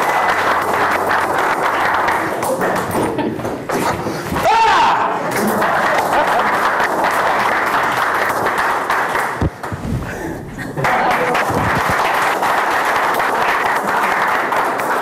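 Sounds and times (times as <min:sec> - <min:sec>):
audience applauding: 0:00.0 - 0:02.9, 0:05.4 - 0:09.8, 0:10.7 - 0:15.0.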